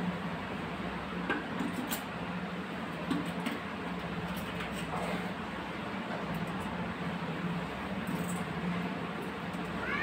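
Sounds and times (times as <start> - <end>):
steady background hum: 0.0 - 10.0.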